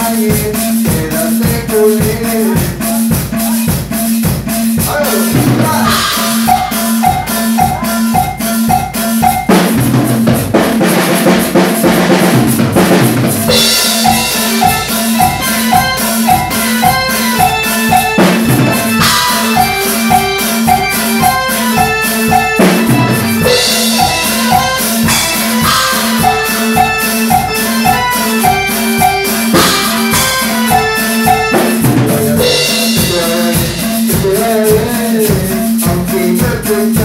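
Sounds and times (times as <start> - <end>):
drum kit beat: 0.0 - 37.0
electronic keyboard melody: 4.8 - 10.6, 12.8 - 33.8
cymbal crashes: 5.8 - 10.0.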